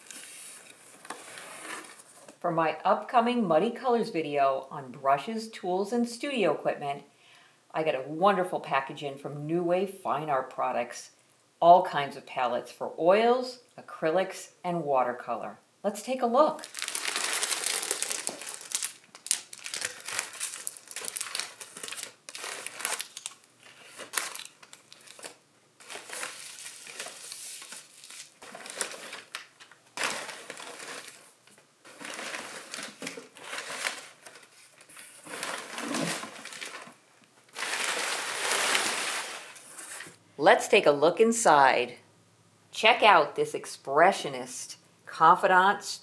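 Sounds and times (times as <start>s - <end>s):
paper and plastic rustling: 0.0s - 2.4s, 16.6s - 40.2s.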